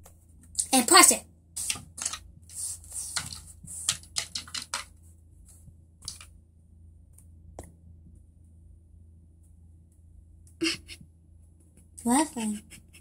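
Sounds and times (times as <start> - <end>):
plastic bricks clicking: 3.2 - 4.9.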